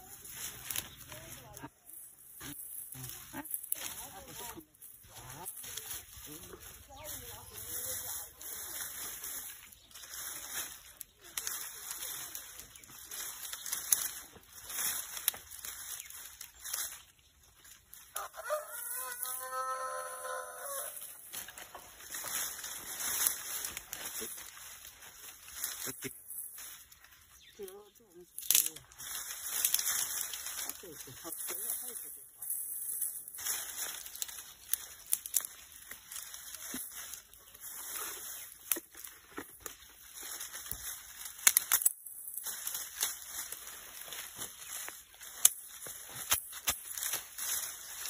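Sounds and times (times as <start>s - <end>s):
dry stalks rustling: 0.0s - 48.0s
rooster crowing: 18.1s - 21.1s.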